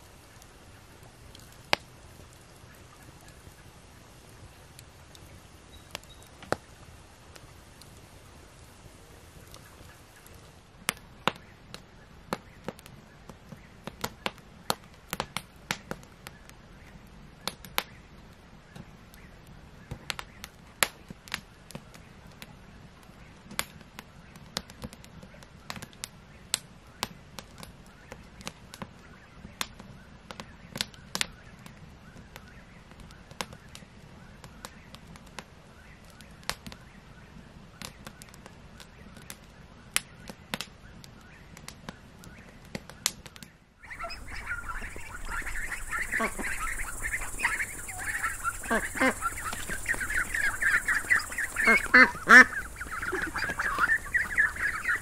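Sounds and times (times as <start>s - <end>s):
log fire crackling: 0.0s - 55.0s
sharp pops of fire: 0.3s - 3.7s, 4.7s - 8.7s, 9.3s - 55.0s
faint low rumble: 43.8s - 55.0s.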